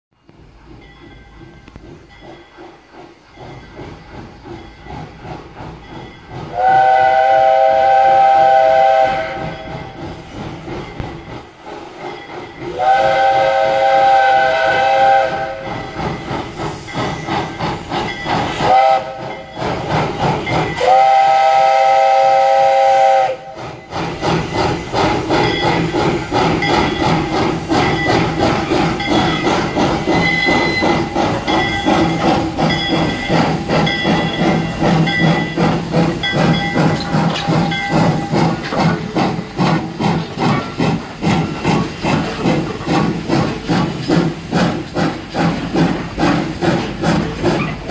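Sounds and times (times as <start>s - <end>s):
steam locomotive exhaust chuffing: 0.2s - 47.9s
steam hissing: 0.3s - 47.9s
steam locomotive whistle: 6.4s - 10.0s, 12.6s - 16.1s, 18.4s - 24.4s, 27.8s - 39.4s.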